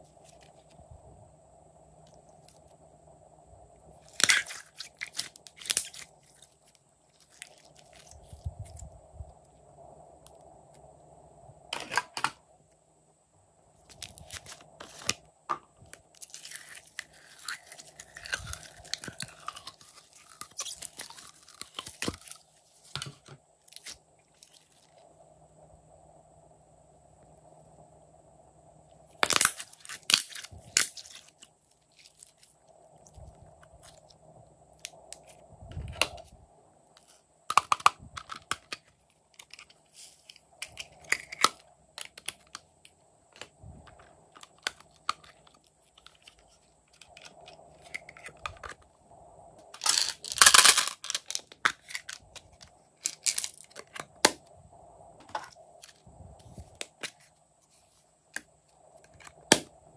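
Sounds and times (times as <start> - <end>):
faint steady hum: 0.0 - 59.9
slime crackling and crinkling: 4.0 - 8.8, 16.1 - 22.9.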